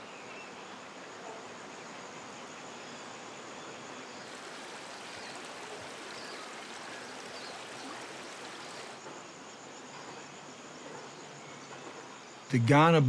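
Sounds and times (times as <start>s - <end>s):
high insect trill: 0.0s - 13.0s
creek water rushing: 4.2s - 9.0s.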